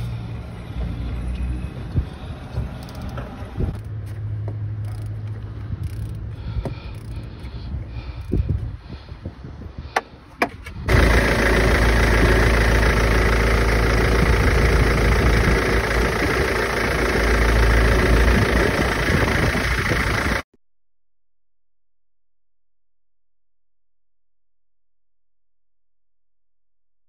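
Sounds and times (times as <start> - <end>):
diesel engine idling: 10.9 - 20.4.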